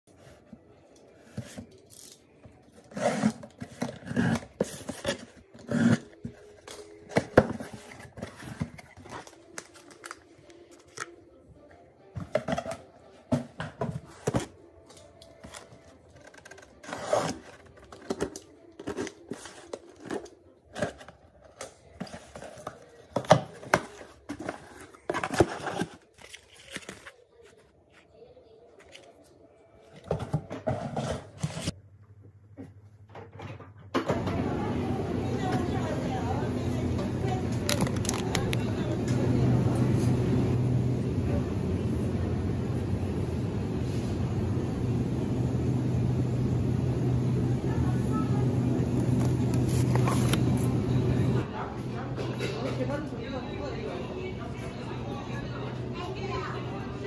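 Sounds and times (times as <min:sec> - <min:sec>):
cardboard box being unpacked: 0:22.0 - 0:27.7, 0:37.6 - 0:38.5, 0:49.0 - 0:50.6.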